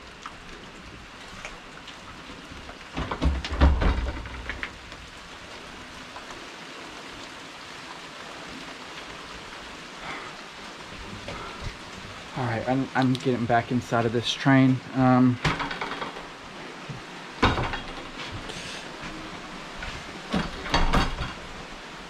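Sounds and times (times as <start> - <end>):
steady rain falling: 0.0 - 22.0
thunder rumbling and cracking: 2.4 - 6.0.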